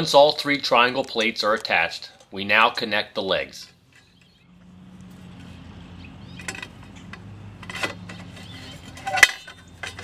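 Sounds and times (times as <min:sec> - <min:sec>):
metallic clicks and clanks: 0:06.3 - 0:10.0.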